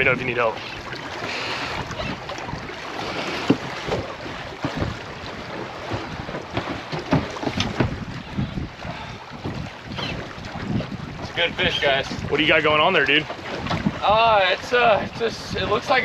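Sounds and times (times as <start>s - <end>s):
water lapping against boat: 0.0s - 16.0s
wind buffeting microphone: 0.0s - 16.0s.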